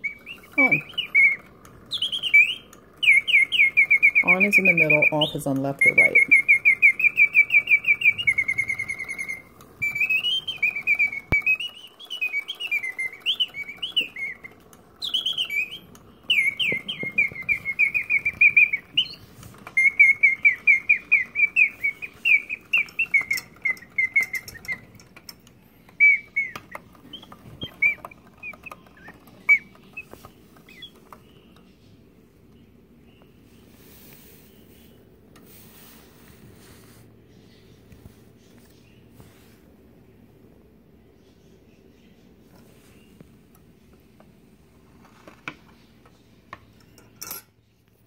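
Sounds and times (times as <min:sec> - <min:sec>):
mechanical bird whistling trills: 0:00.0 - 0:31.5.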